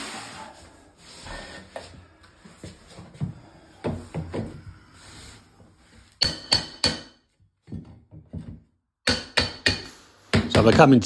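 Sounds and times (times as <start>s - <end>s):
hammer striking metal bar: 6.2s - 7.2s, 9.0s - 9.9s.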